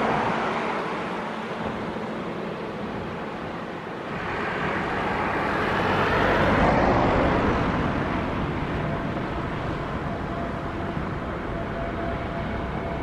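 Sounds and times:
vehicle rushing past: 4.1s - 8.7s.

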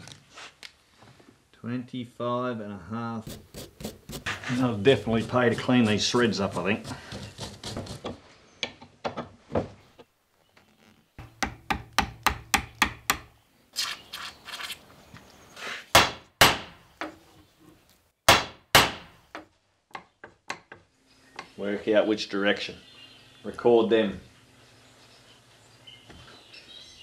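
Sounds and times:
metal scraping: 4.1s - 6.7s
loud sharp knocks: 15.9s - 16.8s, 18.3s - 19.2s.

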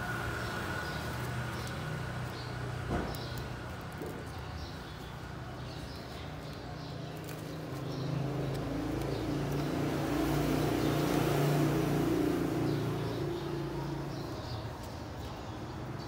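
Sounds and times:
vehicle passing by: 7.1s - 16.0s.

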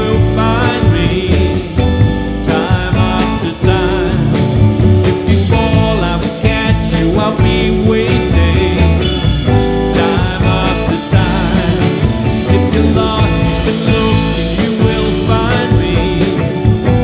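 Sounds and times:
drum kit with cymbals: 0.0s - 17.0s
electric guitar: 0.0s - 17.0s
upright bass: 0.0s - 17.0s.

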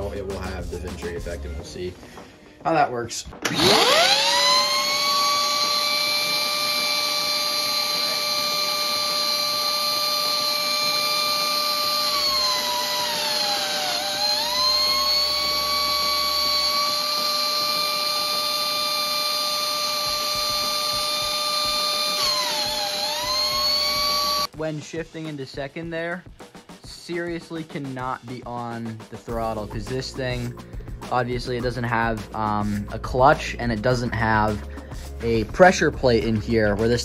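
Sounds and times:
air turbine high whine: 3.3s - 24.5s
shop vacuum running: 3.3s - 24.5s.

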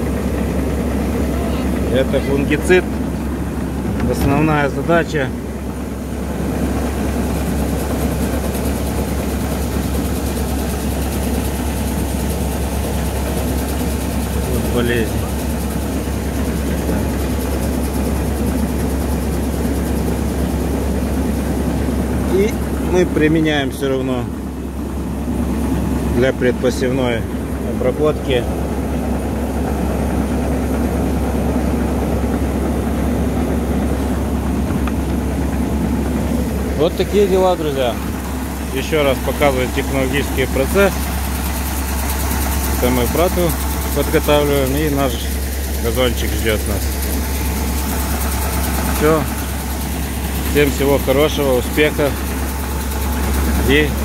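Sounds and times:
machinery humming: 0.0s - 54.0s
faint fast high pulsing: 35.9s - 54.0s.

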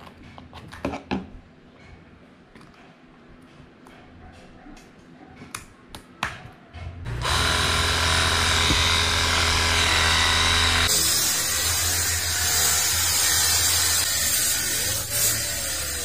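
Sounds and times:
pressure washer motor humming: 7.1s - 16.0s.

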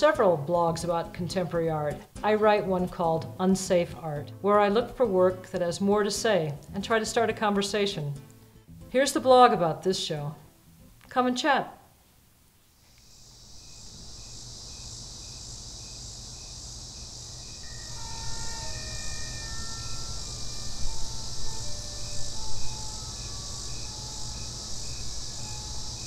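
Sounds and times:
insect chorus chirping: 12.6s - 26.0s
low hum: 13.5s - 26.0s.

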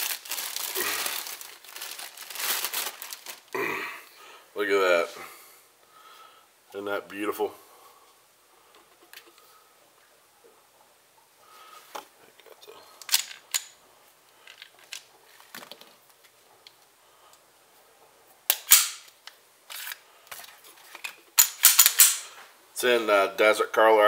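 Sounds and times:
plastic bags crinkling: 0.0s - 3.7s.

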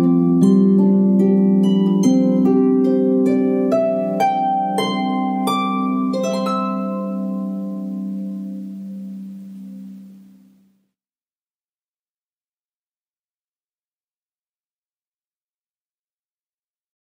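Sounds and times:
plucked string notes: 0.0s - 10.5s.

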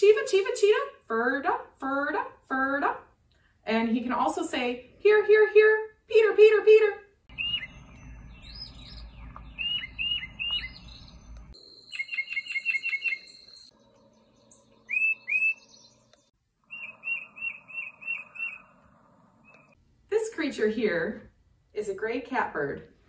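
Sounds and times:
titmouse whistled song: 7.3s - 13.7s, 14.8s - 16.0s, 16.7s - 18.7s.

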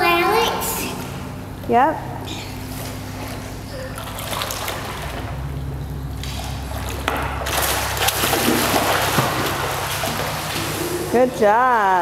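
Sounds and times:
low hum: 0.0s - 12.0s
child splashing in pool: 2.7s - 5.3s, 6.2s - 11.4s.

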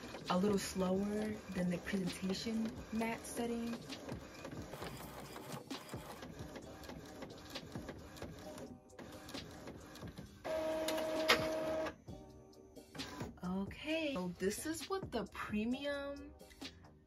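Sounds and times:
printer carriage shuttling: 10.5s - 11.8s
printer motor whine: 10.5s - 12.0s.

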